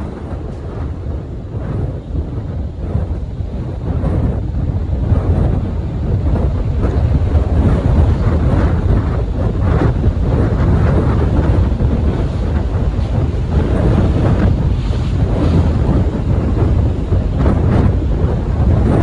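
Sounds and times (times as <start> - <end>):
rushing sea water: 0.0 - 19.0
wind buffeting microphone: 0.0 - 19.0.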